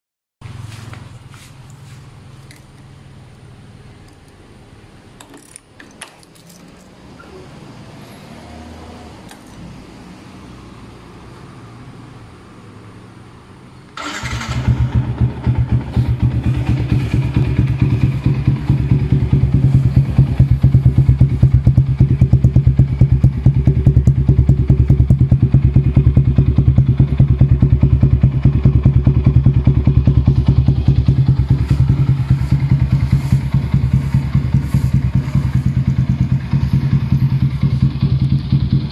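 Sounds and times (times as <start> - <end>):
motorcycle engine idling: 14.0 - 38.9.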